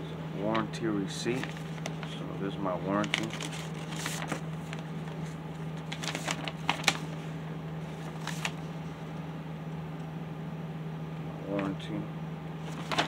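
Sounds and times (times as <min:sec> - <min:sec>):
steady low hum: 0:00.0 - 0:13.0
paper rustling and crinkling: 0:00.5 - 0:02.2, 0:02.8 - 0:07.2, 0:07.8 - 0:08.7, 0:12.6 - 0:13.0.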